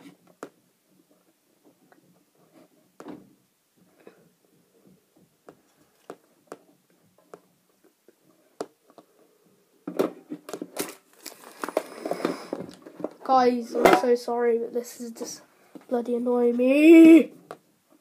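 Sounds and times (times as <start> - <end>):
rustling: 0.0 - 14.0
hands tapping and clicking objects: 5.4 - 9.1.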